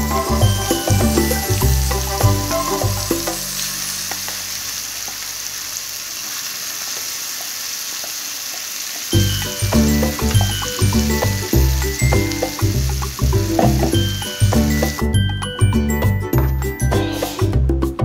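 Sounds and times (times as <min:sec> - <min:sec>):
background music with a beat: 0:00.0 - 0:03.6, 0:09.2 - 0:18.0
paste sizzling in hot oil: 0:00.0 - 0:15.4, 0:16.9 - 0:17.5.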